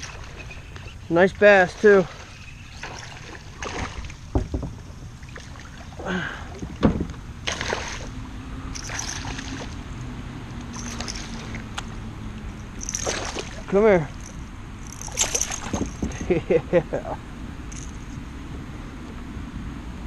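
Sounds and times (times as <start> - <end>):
fish splashing in water: 1.8 - 4.3, 7.4 - 9.9, 10.7 - 15.9
knocks from kayak and paddle: 3.6 - 4.8, 6.6 - 7.7.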